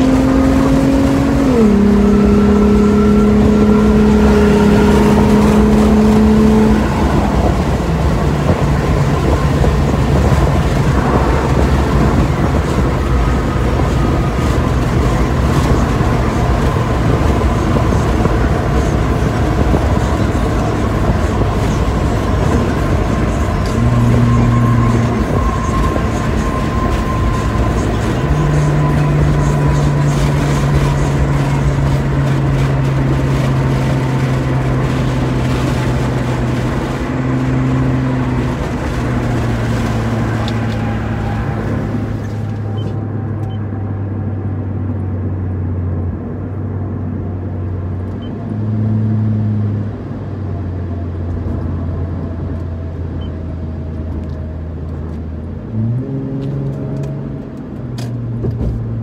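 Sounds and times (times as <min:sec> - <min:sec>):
car exhaust droning in cabin: 0:00.0 - 0:46.3.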